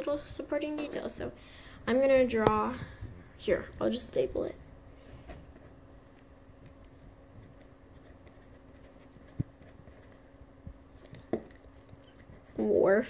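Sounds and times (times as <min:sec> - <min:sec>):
faint steady hum: 0:00.0 - 0:13.0
pencil scratching on paper: 0:07.4 - 0:10.2, 0:11.4 - 0:13.0.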